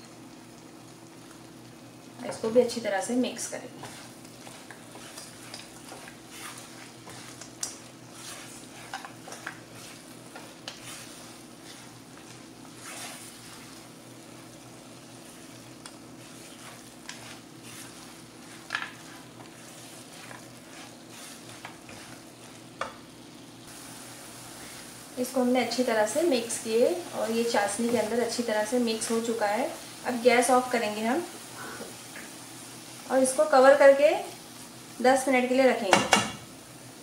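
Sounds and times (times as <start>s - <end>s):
light sizzle: 0.0s - 37.0s
spatula scraping a pan: 3.7s - 23.0s.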